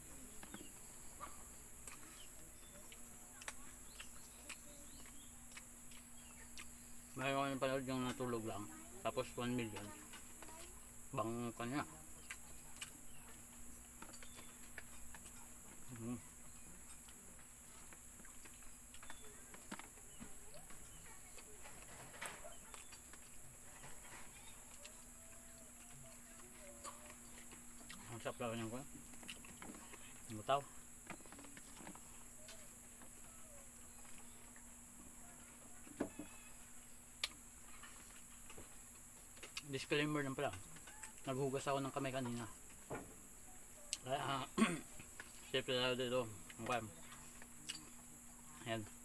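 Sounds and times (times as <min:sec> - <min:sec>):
insects droning: 0:00.0 - 0:49.0
chewing and scooping rice: 0:00.1 - 0:08.5, 0:09.2 - 0:42.3
bird chirps: 0:11.6 - 0:17.0
faint animal call: 0:23.7 - 0:27.5, 0:32.4 - 0:34.4.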